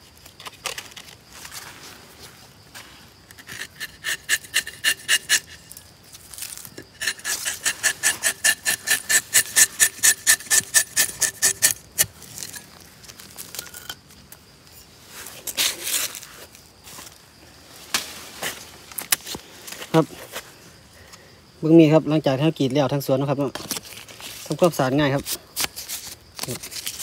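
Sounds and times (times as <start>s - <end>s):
knife rasping on bark: 3.3s - 5.8s, 6.4s - 12.7s.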